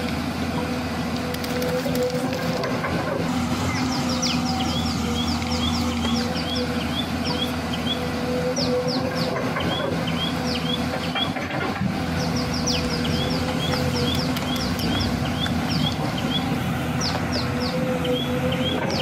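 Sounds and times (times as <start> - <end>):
mechanical hum with held tone: 0.0 - 19.0
small birds chirping: 3.6 - 11.4, 12.1 - 19.0.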